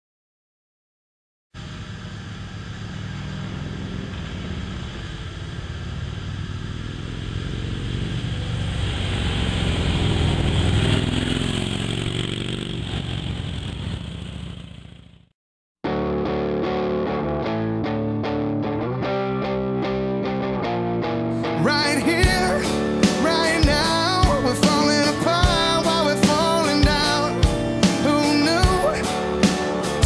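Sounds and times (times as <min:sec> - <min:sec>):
motorcycle engine running: 0:01.6 - 0:15.3, 0:21.9 - 0:30.0.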